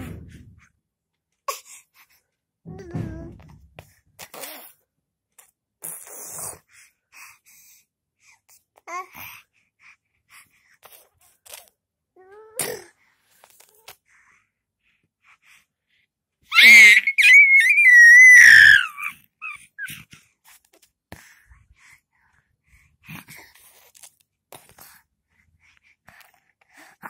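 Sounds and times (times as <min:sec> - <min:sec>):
baby squealing: 0:16.5 - 0:20.0.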